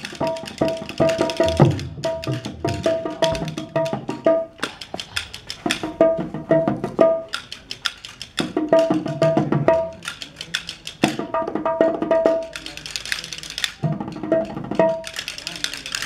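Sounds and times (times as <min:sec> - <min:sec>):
wooden castanets clacking: 0:00.0 - 0:16.0.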